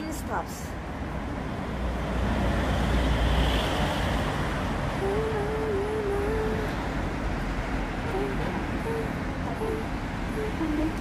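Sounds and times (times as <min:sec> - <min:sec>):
passing vehicle rumble: 0:00.0 - 0:11.0
traffic hum: 0:00.0 - 0:11.0.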